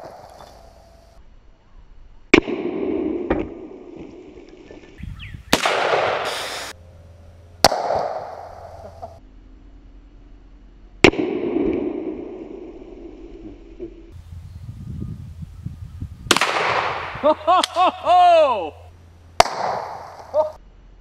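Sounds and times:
rifle shots: 5.5 - 6.7, 7.6 - 9.0, 16.3 - 17.8, 19.4 - 20.4.

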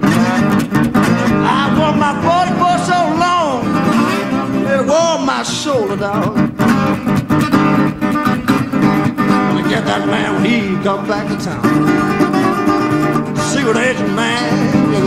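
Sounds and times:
person singing: 0.0 - 6.6, 9.4 - 12.2, 13.1 - 15.0
acoustic guitar strumming: 0.0 - 15.0.

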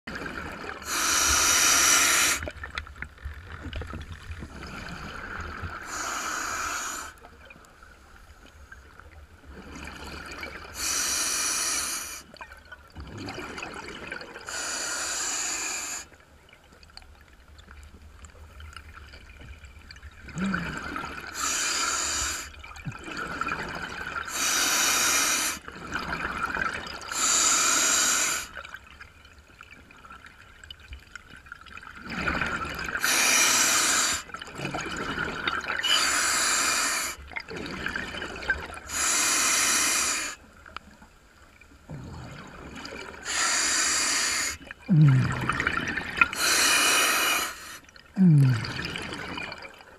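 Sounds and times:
exhaled bubbles underwater: 0.1 - 2.8, 3.4 - 6.0, 9.4 - 10.9, 12.3 - 14.6, 18.7 - 21.6, 22.5 - 24.4, 25.6 - 27.4, 30.9 - 36.5, 37.1 - 39.1, 41.7 - 49.9
hissing regulator breaths: 0.9 - 2.4, 5.8 - 7.2, 10.8 - 12.2, 14.5 - 16.1, 21.4 - 22.5, 24.3 - 25.6, 33.0 - 34.3, 35.8 - 37.2, 38.9 - 40.4, 43.2 - 44.6, 46.4 - 47.9.

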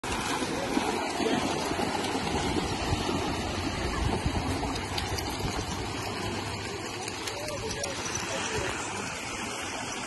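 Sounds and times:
dogs running through water: 0.0 - 10.0
waves washing onto shingle: 0.0 - 10.0.

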